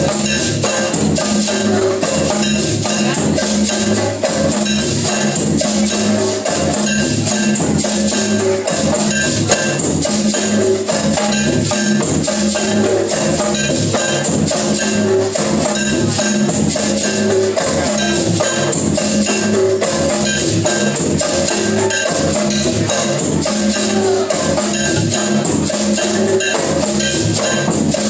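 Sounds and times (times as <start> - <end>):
low-pitched percussion pattern: 0.0 - 28.0
drum hits: 7.2 - 12.6
wood block hits: 8.7 - 12.4.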